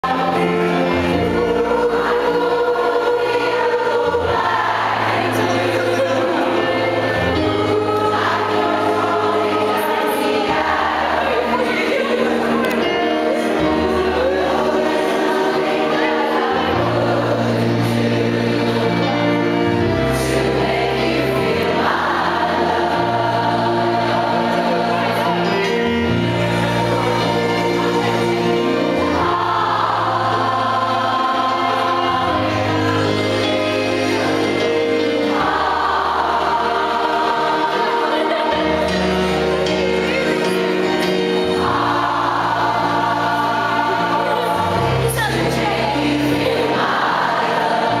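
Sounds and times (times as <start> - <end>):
choir singing: 0.0 - 48.0.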